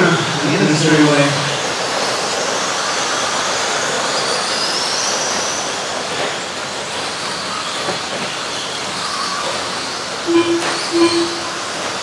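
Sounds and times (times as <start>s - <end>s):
rc truck motors whining: 2.0s - 12.0s.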